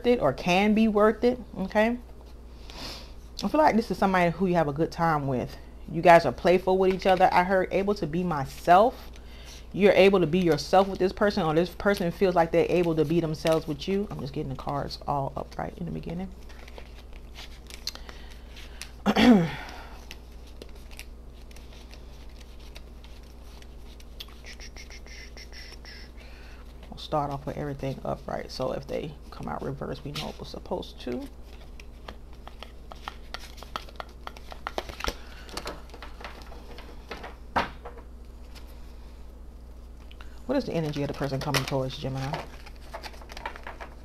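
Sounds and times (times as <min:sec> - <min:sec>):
card rustle: 0:16.3 - 0:19.0, 0:19.9 - 0:27.4, 0:30.0 - 0:38.8, 0:39.8 - 0:44.0
cards being shuffled: 0:16.4 - 0:19.0, 0:19.8 - 0:27.4, 0:30.1 - 0:38.8, 0:40.7 - 0:44.0
cards clicking and flicking: 0:31.7 - 0:36.4.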